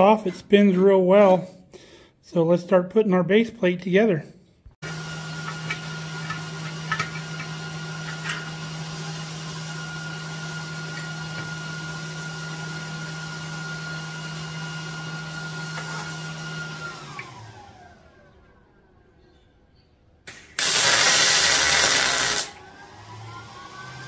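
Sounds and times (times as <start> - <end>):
electric motor humming: 20.6 - 24.0.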